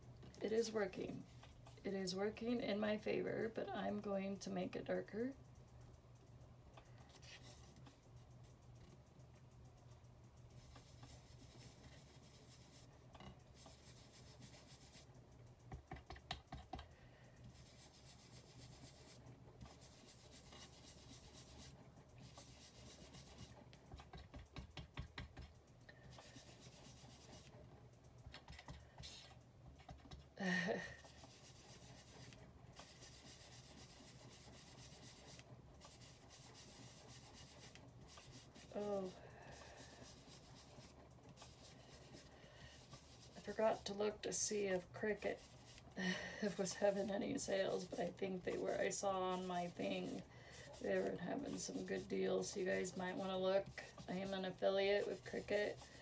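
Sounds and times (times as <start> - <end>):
faint steady hum: 0.0 - 56.0
paper rubbed by hand: 46.5 - 56.0.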